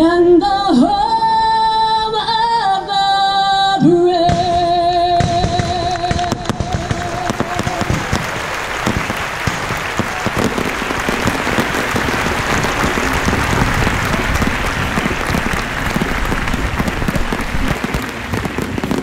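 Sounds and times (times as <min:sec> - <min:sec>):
fireworks bangs and crackles: 0:04.2 - 0:19.0
audience applauding: 0:06.6 - 0:19.0.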